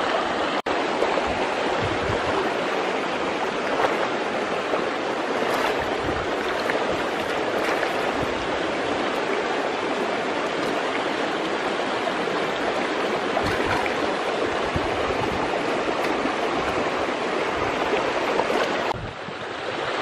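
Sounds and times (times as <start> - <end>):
shallow river flowing: 0.0 - 20.0
small water splashes: 1.0 - 19.0.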